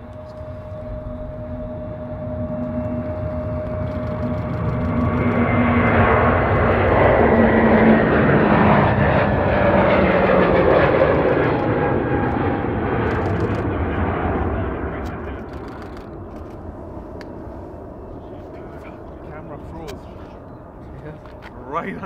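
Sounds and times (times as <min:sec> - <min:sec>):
jet engines roaring at takeoff: 0:00.0 - 0:22.0.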